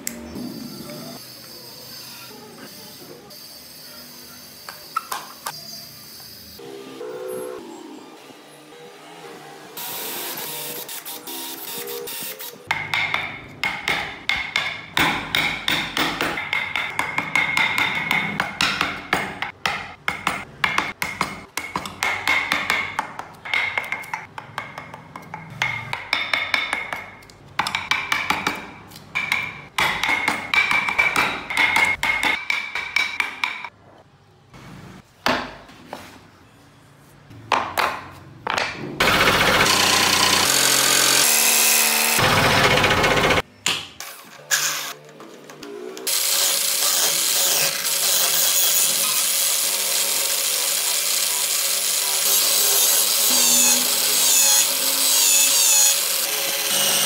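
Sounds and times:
chisels tapping and scraping wood: 0:12.7 - 0:33.8
scroll saw cutting wood: 0:39.0 - 0:43.4, 0:46.1 - 0:57.0.

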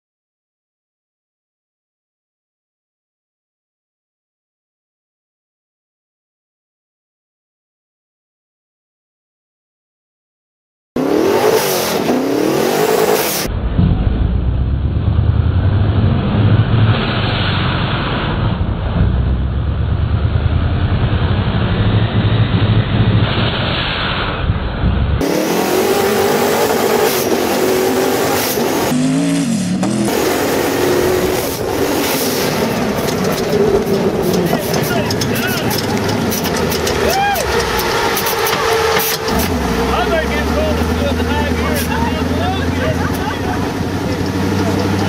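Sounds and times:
racing engine running hard: 0:11.0 - 0:23.8, 0:24.5 - 0:45.0.

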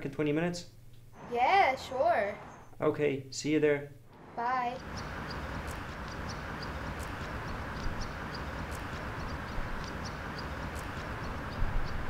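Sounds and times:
low background rumble: 0:01.1 - 0:02.8, 0:04.0 - 0:12.0
small birds chirping: 0:01.2 - 0:02.8, 0:04.2 - 0:12.0.

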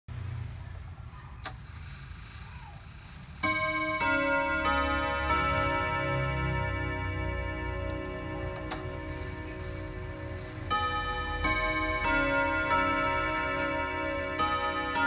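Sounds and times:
clock gong chime tune: 0:03.4 - 0:15.0
clock ticking: 0:03.4 - 0:15.0
clock click: 0:07.6 - 0:10.8.

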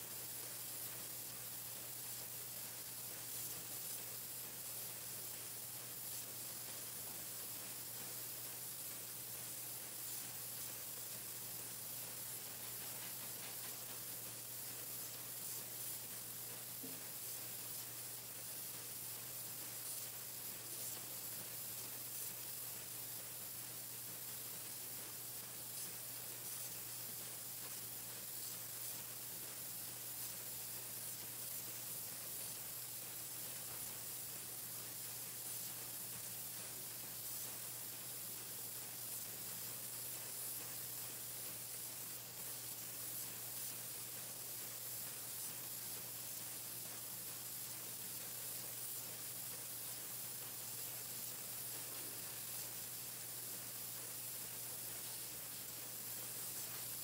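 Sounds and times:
painting machine hissing: 0:00.0 - 0:57.0.

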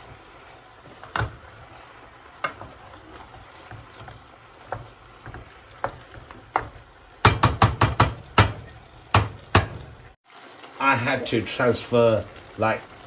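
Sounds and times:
wooden spoon stirring food in pot: 0:00.0 - 0:10.2
spoon knocking on metal pot: 0:03.7 - 0:09.9.

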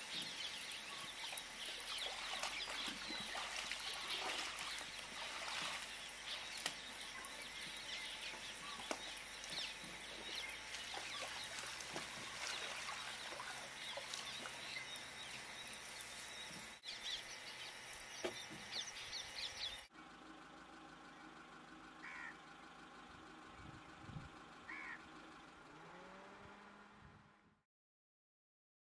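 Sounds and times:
birds chirping and calling: 0:00.0 - 0:19.9, 0:22.0 - 0:22.4, 0:24.1 - 0:25.0.

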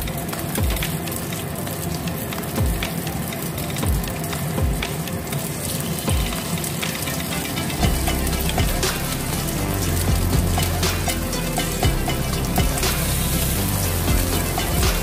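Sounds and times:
background music with low beat: 0:00.0 - 0:15.0
oil sizzling in a wok: 0:05.5 - 0:15.0.

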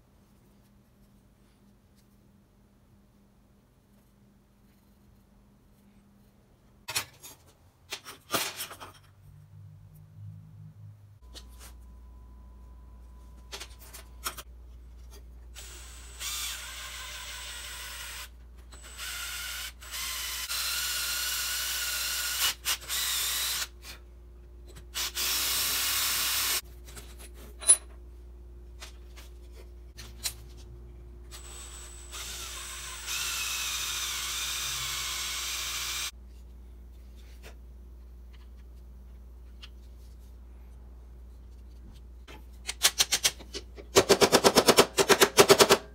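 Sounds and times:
electric drill whining: 0:31.3 - 0:36.1.

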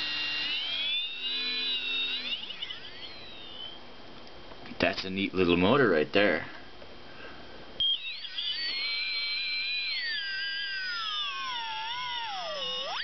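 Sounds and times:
electric motor whine: 0:00.0 - 0:03.8, 0:07.8 - 0:13.0.

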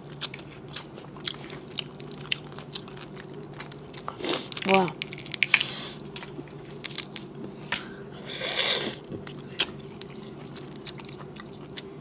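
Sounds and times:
shells cracking as peeled: 0:04.5 - 0:07.3.

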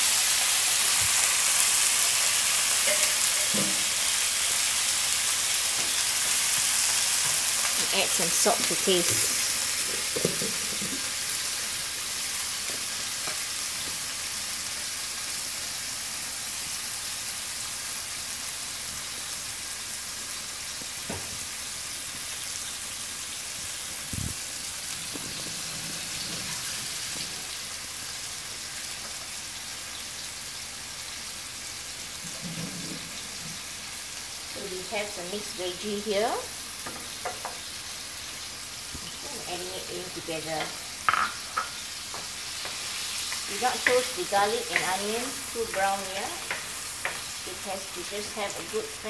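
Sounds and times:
food sizzling in a frying pan: 0:00.0 - 0:49.0.

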